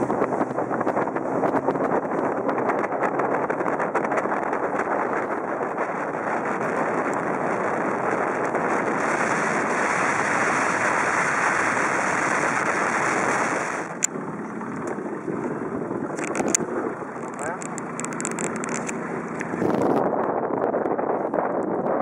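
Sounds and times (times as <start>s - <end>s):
water rushing: 0.0s - 20.1s
boat motor rushing: 0.0s - 22.0s
wind on microphone: 0.0s - 22.0s
sharp click: 16.2s - 16.6s.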